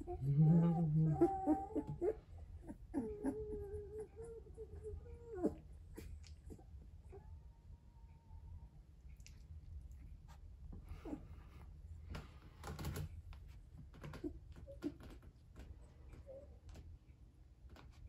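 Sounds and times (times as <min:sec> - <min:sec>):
puppies grunting: 0:00.0 - 0:06.7
low room hum: 0:00.0 - 0:18.0.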